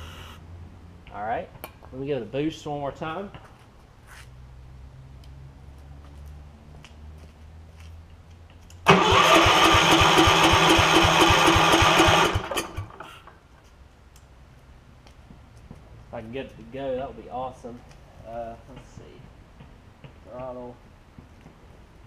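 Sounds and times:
engine cranking by electric starter: 8.8s - 13.4s.

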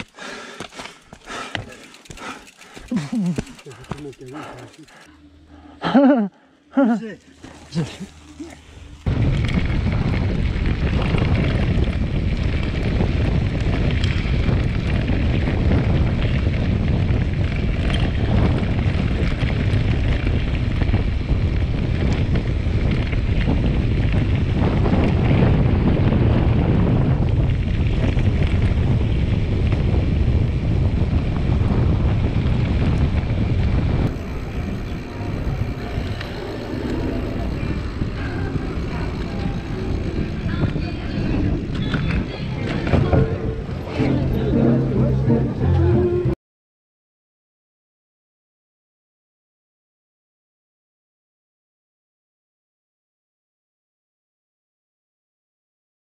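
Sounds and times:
wind buffeting microphone: 0.0s - 5.1s, 7.5s - 44.8s.

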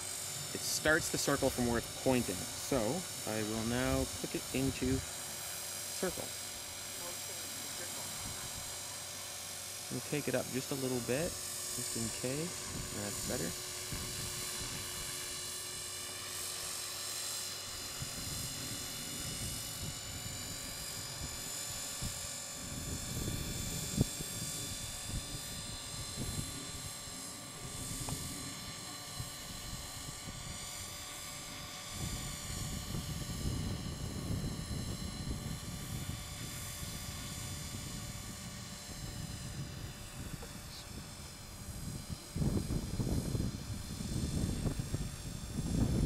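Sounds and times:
rc helicopter rotor whine: 0.0s - 46.0s
wind rumbling on microphone: 11.9s - 15.4s, 17.8s - 46.0s.

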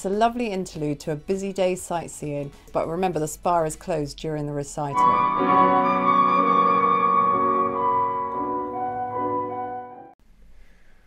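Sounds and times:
flute playing long notes: 4.9s - 10.2s
piano accompaniment: 4.9s - 10.2s.

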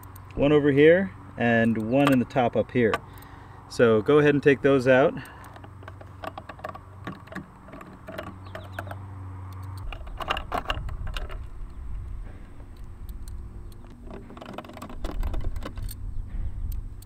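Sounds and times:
low rumble: 15.4s - 17.0s.

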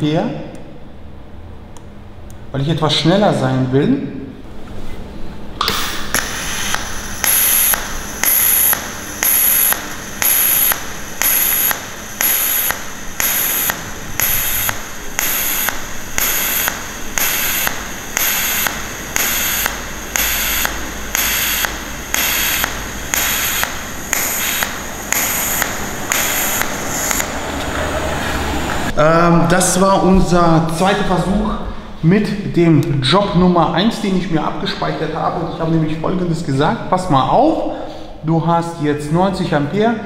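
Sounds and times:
welding arc pulsing buzz: 5.6s - 29.0s.

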